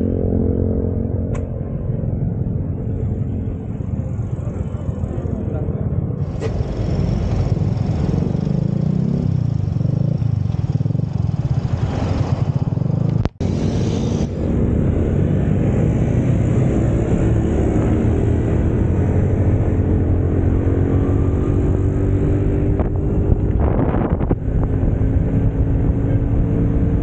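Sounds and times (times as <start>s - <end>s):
scooter engine: 6.2s - 14.5s.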